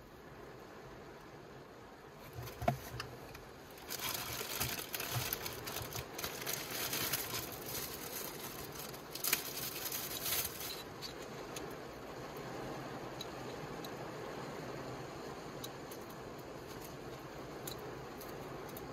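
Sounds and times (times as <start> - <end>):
plastic bags crinkling: 3.7 - 11.0.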